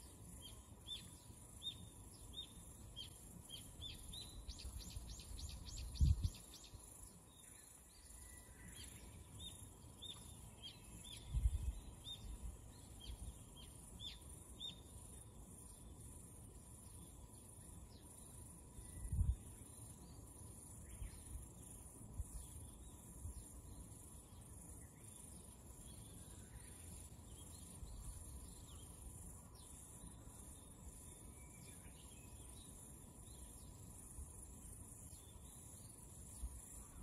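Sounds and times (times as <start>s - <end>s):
high insect trill: 0.0s - 37.0s
wind bumps on microphone: 5.9s - 6.4s.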